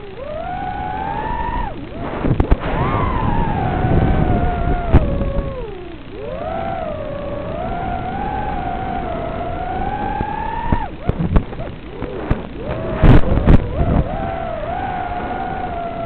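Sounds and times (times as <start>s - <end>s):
drone motors whining: 0.0s - 16.0s
drone hitting the ground: 1.9s - 5.6s, 10.2s - 14.1s.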